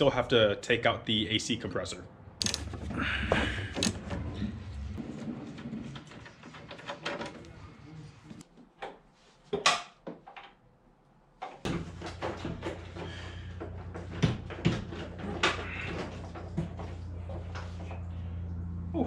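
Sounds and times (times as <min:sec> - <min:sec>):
tools knocking and clunking: 0:02.4 - 0:04.6, 0:11.4 - 0:18.0.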